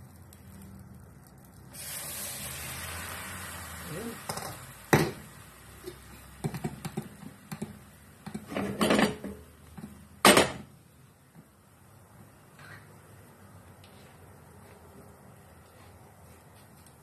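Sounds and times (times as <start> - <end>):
frying pan clattering on stove: 4.3 - 5.3, 5.9 - 9.5, 10.2 - 10.7.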